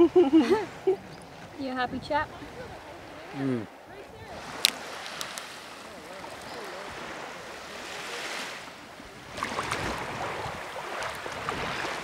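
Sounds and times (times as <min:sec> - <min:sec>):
shallow seawater lapping: 0:00.0 - 0:12.0
small water splashes and trickles: 0:09.3 - 0:12.0.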